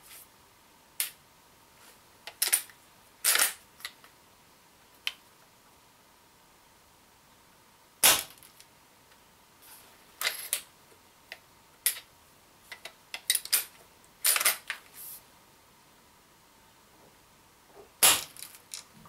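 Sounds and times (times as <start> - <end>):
air rifle shot: 18.0 - 18.4.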